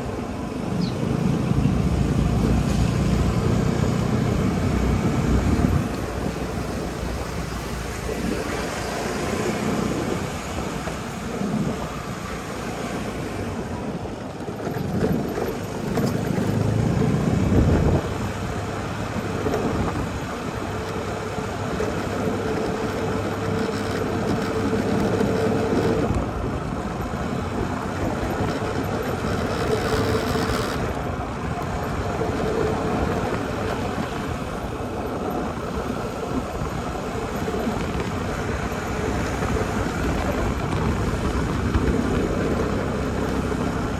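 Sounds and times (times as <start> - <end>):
small vehicle driving on road: 0.0 - 43.9
tyre and wind noise: 0.0 - 43.9.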